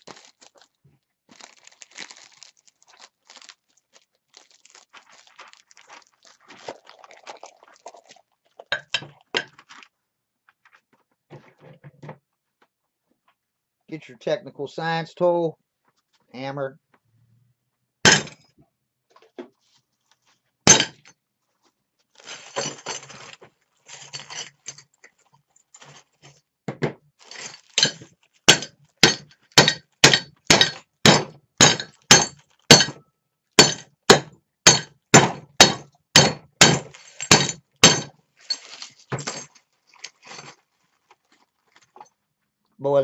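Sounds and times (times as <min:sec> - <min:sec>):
ceramic shards crunching: 0:22.2 - 0:23.3, 0:23.9 - 0:25.9, 0:27.2 - 0:33.0, 0:34.7 - 0:40.6
hammer striking ceramic cup: 0:27.8 - 0:33.0, 0:33.6 - 0:38.1.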